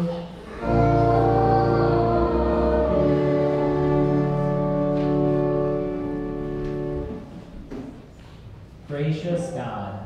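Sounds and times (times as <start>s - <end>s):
church organ chords: 0.5s - 7.4s.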